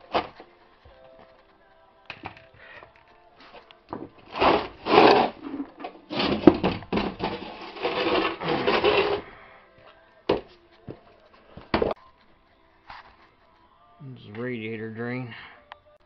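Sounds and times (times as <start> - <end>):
rough scraping and rubbing: 4.2 - 9.4.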